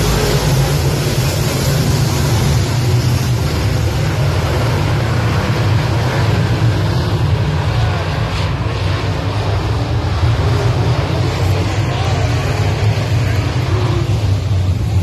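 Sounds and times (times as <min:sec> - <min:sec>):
race car engines droning: 0:00.0 - 0:15.0.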